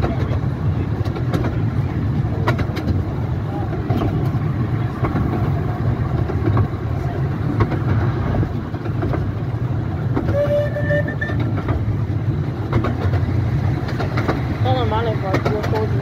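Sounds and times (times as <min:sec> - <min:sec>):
steam train rumbling: 0:00.0 - 0:16.0
wheels clicking over rail joints: 0:00.0 - 0:16.0
train whistle blast: 0:10.3 - 0:11.4.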